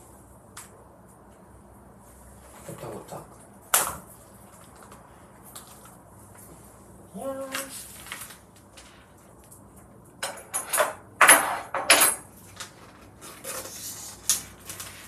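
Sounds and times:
cling film crinkling and tearing: 7.4s - 9.6s, 12.5s - 15.0s.

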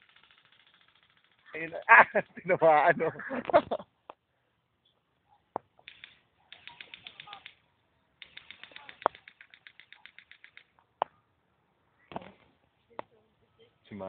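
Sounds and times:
airsoft gun automatic bursts: 0.0s - 2.5s, 5.8s - 7.6s, 8.2s - 10.7s.

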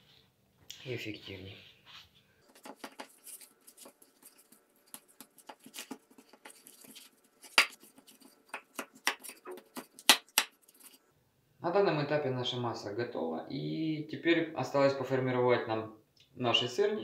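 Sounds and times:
hands kneading dough squelching: 2.4s - 11.0s.

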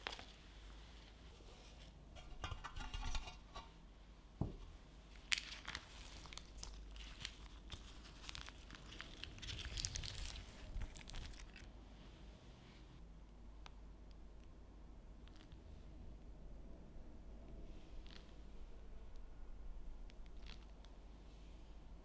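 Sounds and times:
baking paper crinkling and tearing: 5.2s - 11.7s.

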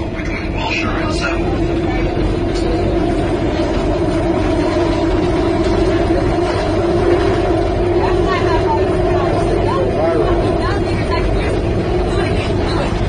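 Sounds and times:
subway train rumbling: 0.0s - 13.0s.

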